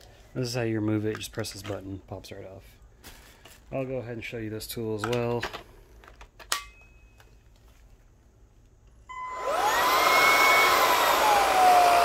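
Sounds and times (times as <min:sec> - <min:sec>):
vacuum cleaner motor whining: 0:09.1 - 0:12.0.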